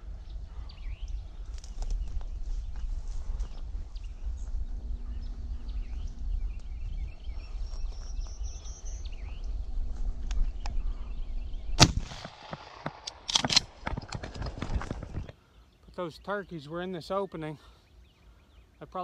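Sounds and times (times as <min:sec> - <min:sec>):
wind rumble on microphone: 0:00.0 - 0:12.6, 0:13.3 - 0:15.3
birds singing faintly: 0:00.0 - 0:19.0
footsteps through grass and brush: 0:01.3 - 0:10.2
shotgun shot with echo: 0:11.8 - 0:13.8.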